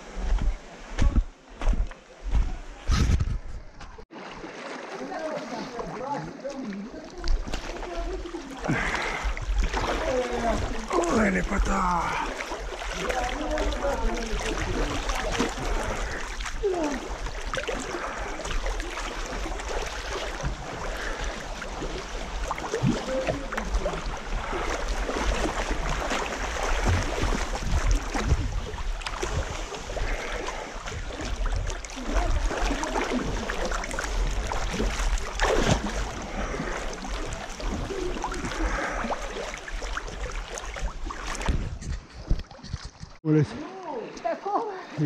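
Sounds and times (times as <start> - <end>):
river water splashing: 3.9 - 45.0
low wind rumble on microphone: 26.8 - 30.2, 40.9 - 43.2.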